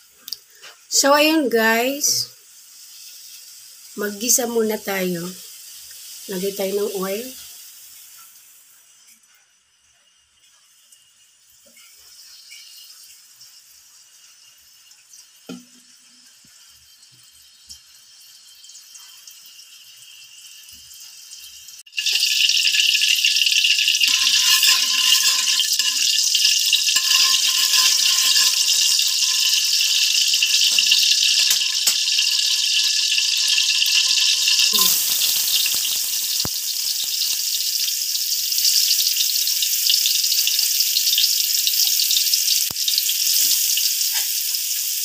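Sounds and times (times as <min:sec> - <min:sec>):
oil hissing in wok: 0:00.0 - 0:45.0
oil sizzling loudly: 0:00.0 - 0:45.0
oil crackles: 0:22.0 - 0:37.8.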